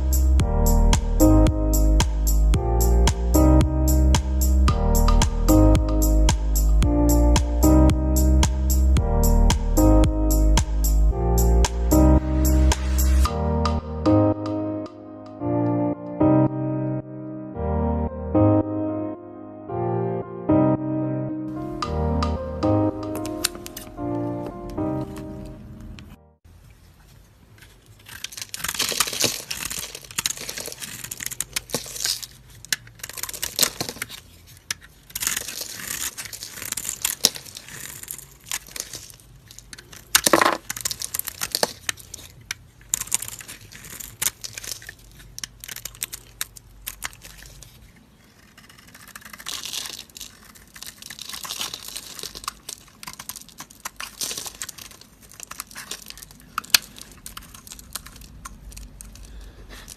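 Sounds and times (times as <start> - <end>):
knife scraping soap: 46.9 - 56.2.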